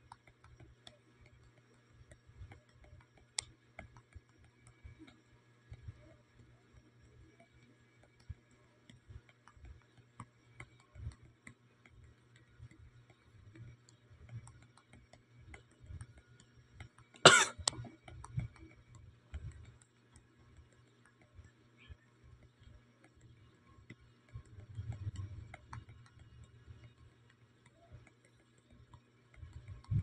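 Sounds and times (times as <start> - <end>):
faint small clicks: 0.0 - 30.0
person coughing: 17.3 - 17.7.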